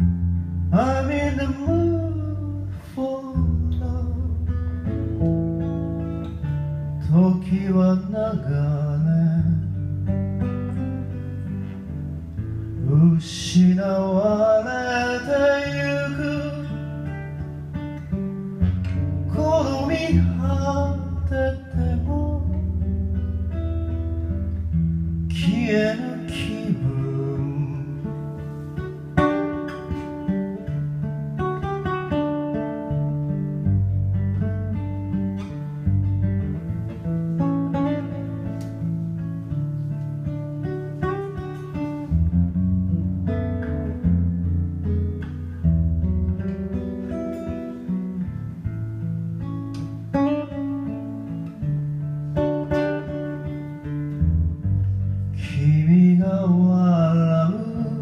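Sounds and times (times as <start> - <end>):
acoustic guitar playing: 0.0 - 58.0.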